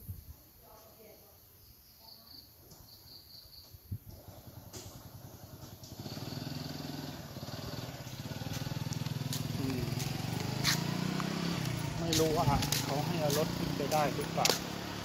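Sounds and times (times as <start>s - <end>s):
vehicle engine approaching: 4.2s - 15.0s.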